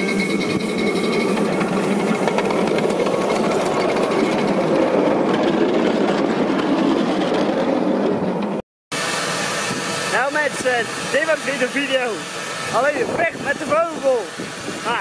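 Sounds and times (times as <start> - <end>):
miniature train wheels rumbling: 0.0 - 8.6.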